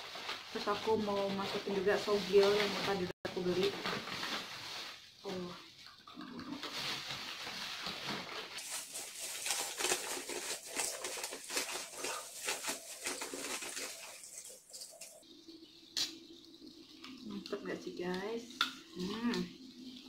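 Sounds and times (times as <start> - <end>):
crackling and rustling of noodles: 0.0 - 15.7.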